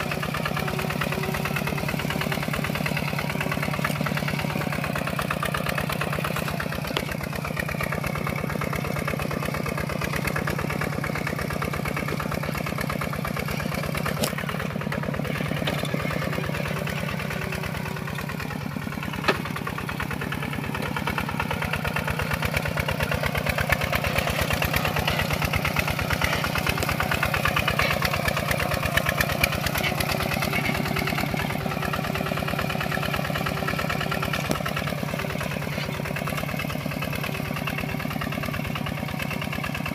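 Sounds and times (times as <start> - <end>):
diesel engine running under load: 0.0 - 39.9.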